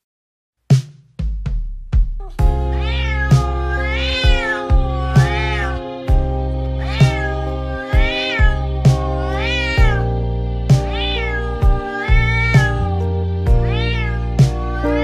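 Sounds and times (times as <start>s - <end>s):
background music with steady beat: 0.7s - 15.0s
cat meowing: 2.2s - 6.0s, 6.8s - 10.2s, 10.8s - 15.0s.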